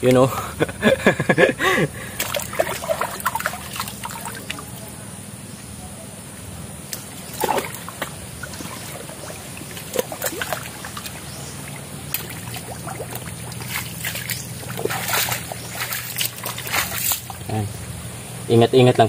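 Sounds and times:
water sloshing and splashing: 2.1 - 4.9, 6.9 - 17.5.

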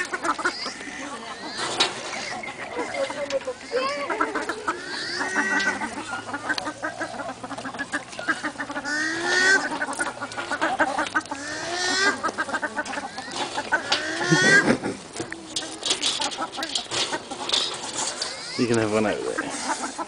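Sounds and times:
birds calling: 0.0 - 20.0.

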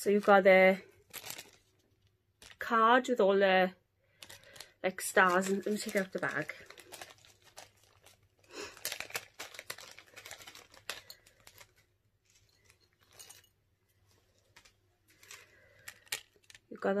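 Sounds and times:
packaging bag crinkling: 0.0 - 2.7, 4.1 - 17.0.

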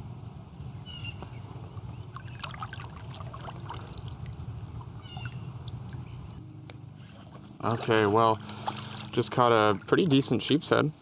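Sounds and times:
steady low rumble: 0.0 - 11.0
water drips and ticks: 1.8 - 6.8
bird chirps: 5.0 - 5.5.

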